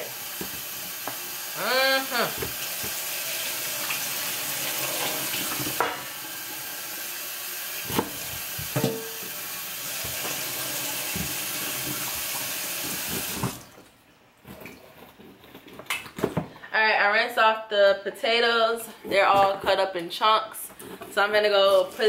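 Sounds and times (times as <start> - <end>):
tap water running into sink: 0.0 - 1.6, 2.3 - 13.8.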